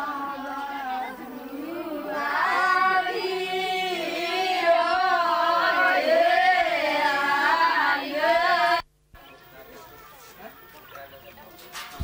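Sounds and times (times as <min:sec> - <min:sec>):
women singing folk song: 0:00.0 - 0:08.8.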